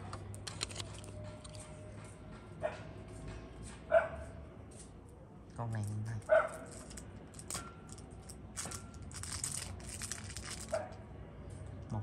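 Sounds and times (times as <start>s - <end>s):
packaging crinkling: 8.6s - 10.8s.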